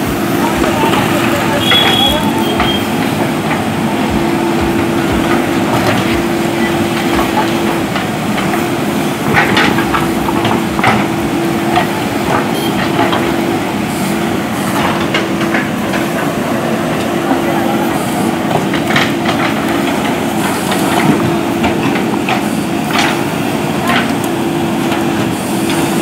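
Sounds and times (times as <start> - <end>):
diesel engine whining under load: 0.0 - 26.0
metal clanks and knocks: 0.6 - 13.6.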